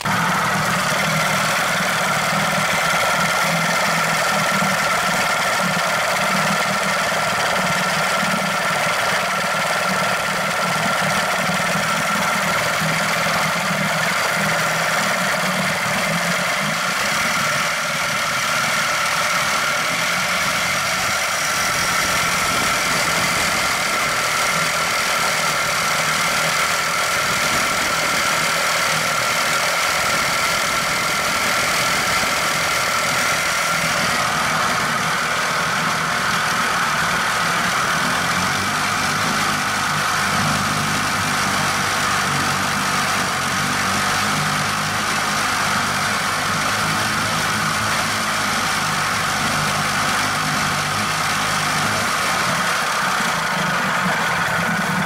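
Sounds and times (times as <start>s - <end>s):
outboard motor running: 0.0s - 55.0s.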